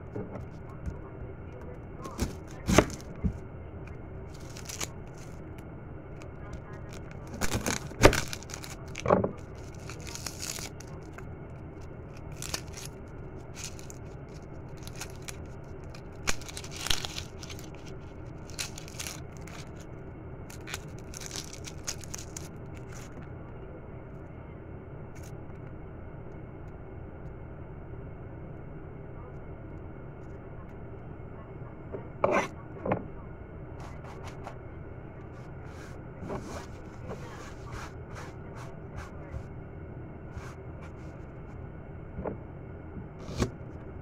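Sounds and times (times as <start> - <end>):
onion skin crackling and tearing: 2.1 - 3.2, 4.3 - 5.6, 6.2 - 19.9, 20.5 - 23.2.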